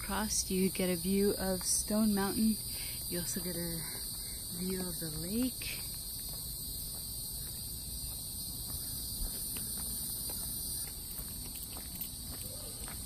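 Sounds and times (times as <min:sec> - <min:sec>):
insects chorus: 0:00.0 - 0:13.0
faint footsteps: 0:02.6 - 0:13.0.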